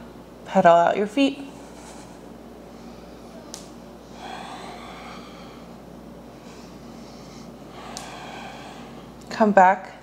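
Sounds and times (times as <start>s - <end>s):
steady low hum: 0.0s - 10.0s
soft breath out: 4.1s - 5.8s, 6.4s - 9.2s.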